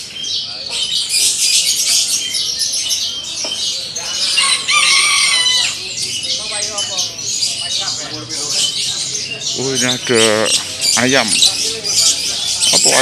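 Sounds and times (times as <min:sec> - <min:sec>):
songbirds chirping: 0:00.0 - 0:13.0
rooster crowing: 0:04.3 - 0:05.8.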